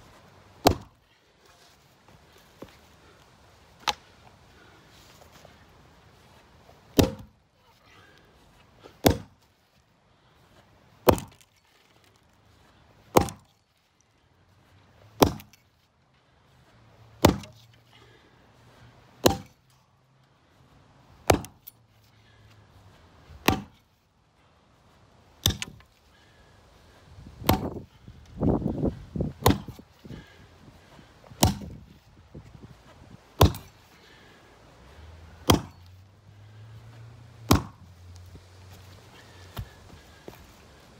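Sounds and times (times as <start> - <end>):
axe chopping wood: 0.6 - 1.0, 3.8 - 4.1, 6.8 - 7.4, 8.9 - 9.5, 11.0 - 11.6, 13.0 - 13.6, 15.2 - 15.7, 17.2 - 17.7, 19.2 - 19.6, 21.2 - 21.8, 23.3 - 23.9, 25.4 - 25.9, 27.4 - 27.9, 29.2 - 30.3, 31.3 - 32.0, 33.4 - 33.9, 35.4 - 35.9, 37.4 - 37.9, 39.2 - 40.4.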